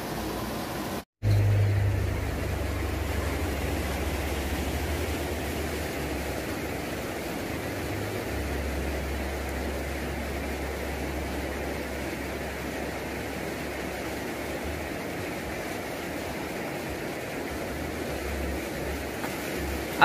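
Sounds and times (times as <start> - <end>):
water flowing over weir: 0.0 - 20.0
low rumble: 1.2 - 14.0.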